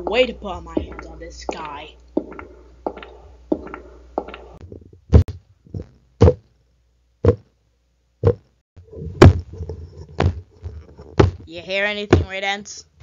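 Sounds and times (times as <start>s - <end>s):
light footstep taps: 0.0s - 6.4s
heavy stomping thuds: 0.0s - 6.5s, 7.2s - 7.5s, 8.2s - 12.4s.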